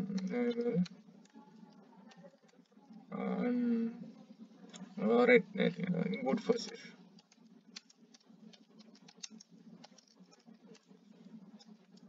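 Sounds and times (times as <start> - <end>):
typing on computer keyboard: 7.2 - 10.9.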